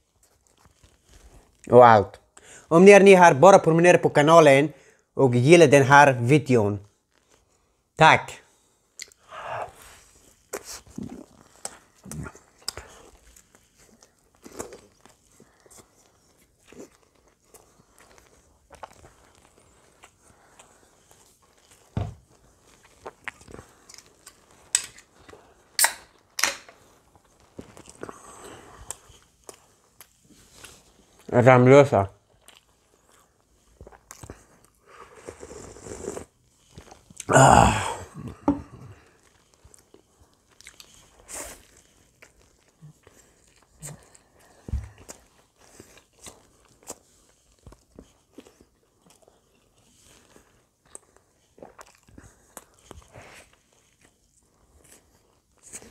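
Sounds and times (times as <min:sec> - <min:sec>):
can tab cracking open: 0:25.8 - 0:26.7
chewing with wet mouth smacks: 0:39.1 - 0:55.9.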